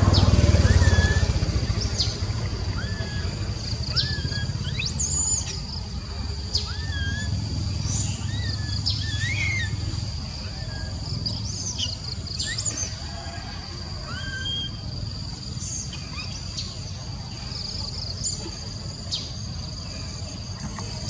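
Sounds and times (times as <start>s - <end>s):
low rumble: 0.0s - 13.0s
baby monkey coo calls: 0.0s - 16.8s
steady high whine: 0.0s - 21.0s.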